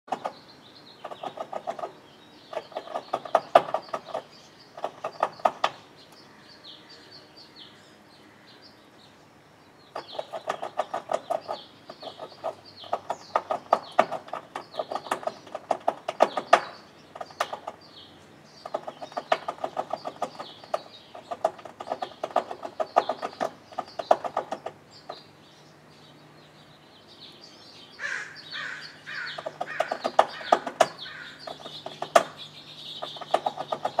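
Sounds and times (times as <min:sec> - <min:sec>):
squirrel gnawing metal gutter: 0:00.1 - 0:05.8, 0:09.9 - 0:17.9, 0:18.6 - 0:25.3, 0:28.6 - 0:34.0.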